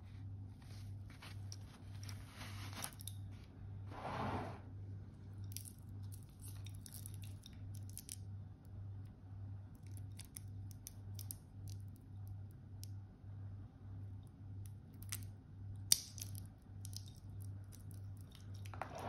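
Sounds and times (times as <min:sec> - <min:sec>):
plastic wrap rustling: 0:00.6 - 0:03.4.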